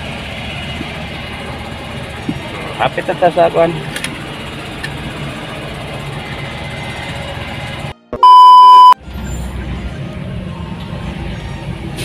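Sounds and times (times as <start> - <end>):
vehicle engine and road noise: 0.0 - 12.0
loud electronic beep: 8.2 - 9.0.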